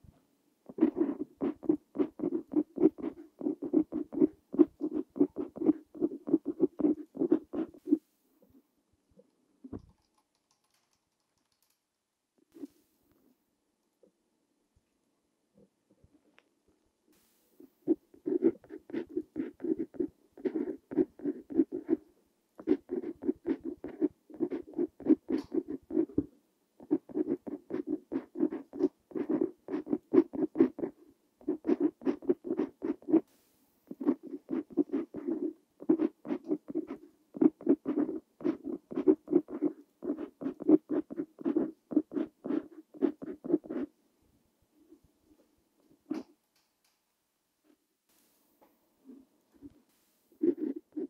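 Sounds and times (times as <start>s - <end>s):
pen nib scratching on paper: 0.7s - 8.0s, 17.8s - 22.0s, 22.6s - 33.3s, 33.9s - 43.9s, 50.4s - 51.0s.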